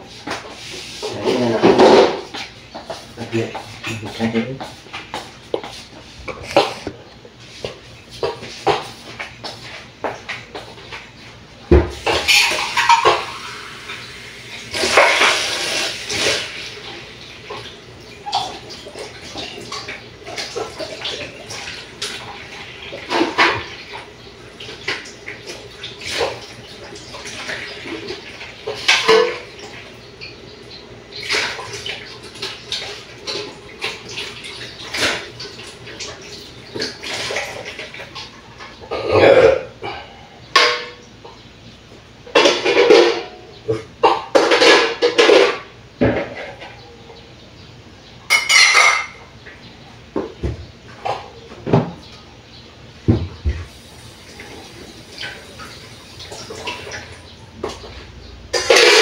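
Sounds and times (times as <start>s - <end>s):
dishes clattering in sink: 0.2s - 7.0s, 11.7s - 14.0s, 14.7s - 30.4s, 31.1s - 41.4s, 42.3s - 46.9s, 48.3s - 49.3s, 54.4s - 59.0s
tap water running: 7.6s - 39.4s, 53.1s - 59.0s.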